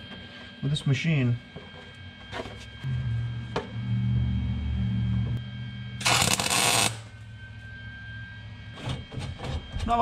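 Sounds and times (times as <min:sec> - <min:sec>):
welder low hum: 0:02.7 - 0:09.1
welding arc crackle: 0:06.0 - 0:07.1.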